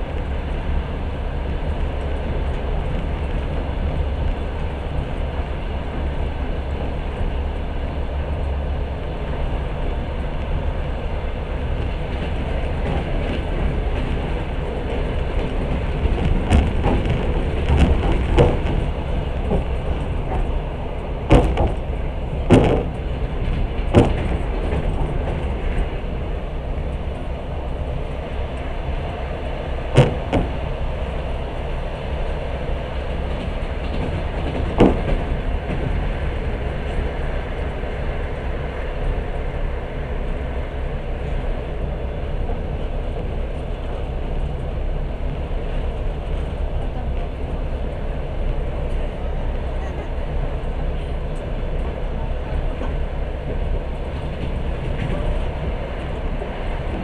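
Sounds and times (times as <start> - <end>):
train wheels rumbling on track: 0.0 - 57.0
sharp knocks from wheels: 11.8 - 20.6, 21.2 - 26.0, 29.9 - 31.2, 33.2 - 37.2.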